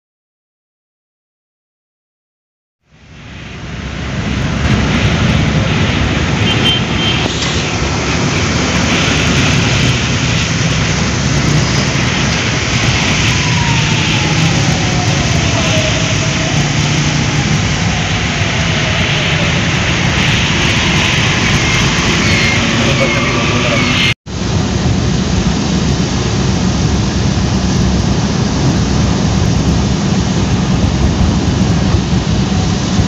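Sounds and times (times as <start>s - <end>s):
low engine rumble: 3.0s - 33.0s.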